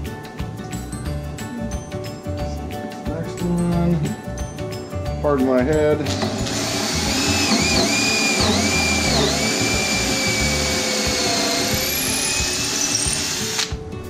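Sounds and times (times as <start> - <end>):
cordless drill boring into wood: 6.1 - 13.8.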